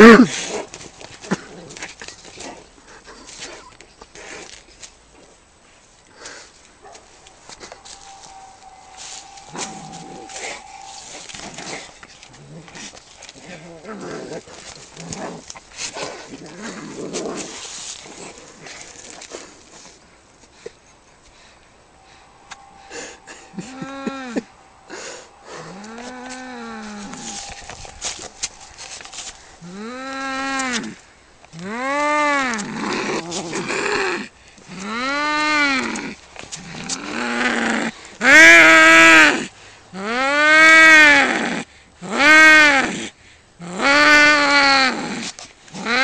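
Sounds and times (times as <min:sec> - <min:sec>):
cats fighting and yowling: 0:06.2 - 0:19.3, 0:22.0 - 0:42.9
cats yowling: 0:06.9 - 0:12.7, 0:22.0 - 0:31.0.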